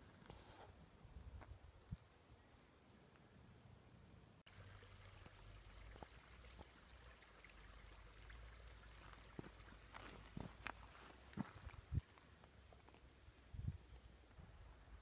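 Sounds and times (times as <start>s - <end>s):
creek trickling over stones: 4.5s - 14.3s.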